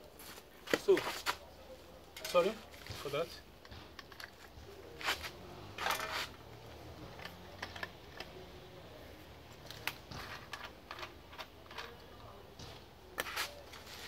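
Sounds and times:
metal parts clattering: 0:05.8 - 0:06.4.

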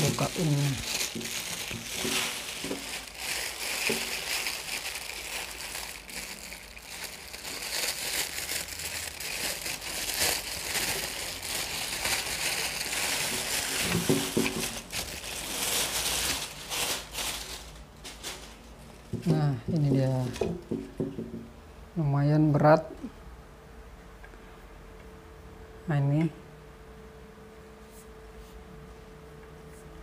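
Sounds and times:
plastic wrapping crinkling: 0:00.0 - 0:21.3.

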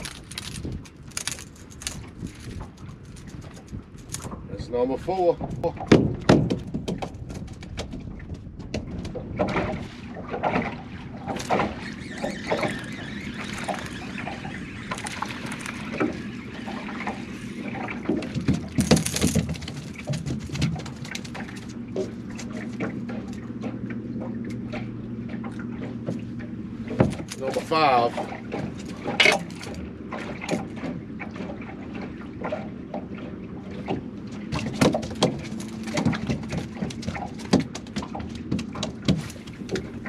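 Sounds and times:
low steady hum: 0:00.0 - 0:40.0
small waves lapping against boat hull: 0:00.0 - 0:40.0.

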